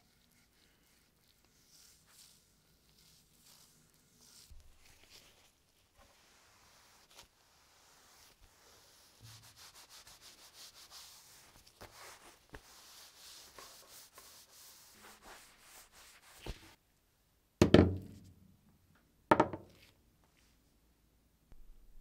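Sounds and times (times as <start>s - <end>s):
towel rubbing a bat: 0.0s - 16.8s
loud knock: 17.6s - 18.2s, 19.3s - 19.6s.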